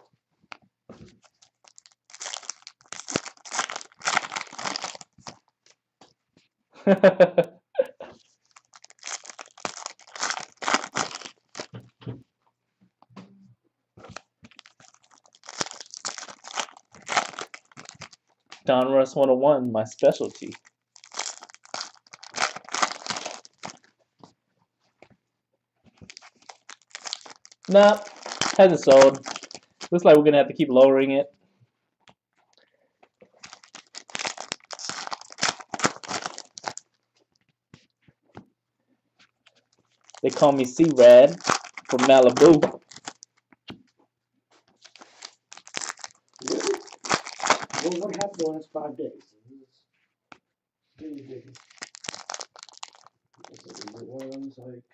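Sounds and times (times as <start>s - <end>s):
foil wrappers crinkling and tearing: 1.2s - 5.5s, 8.2s - 11.8s, 14.1s - 18.7s, 19.9s - 23.9s, 26.0s - 30.0s, 33.3s - 37.0s, 39.8s - 43.4s, 44.8s - 48.6s, 51.5s - 54.4s.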